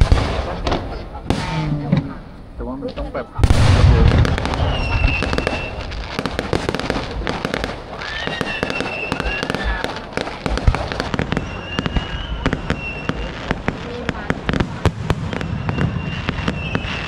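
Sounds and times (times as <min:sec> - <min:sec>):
fireworks crackling pops and bangs: 0:00.0 - 0:17.0
high fireworks whistles: 0:03.4 - 0:17.0.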